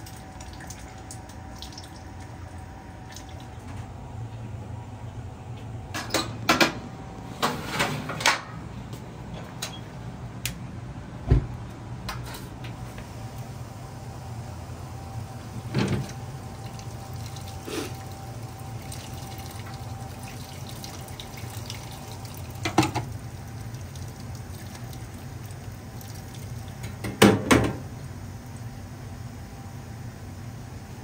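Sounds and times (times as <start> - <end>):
steady low hum: 0.0 - 31.0
water pouring and splashing: 16.6 - 26.9.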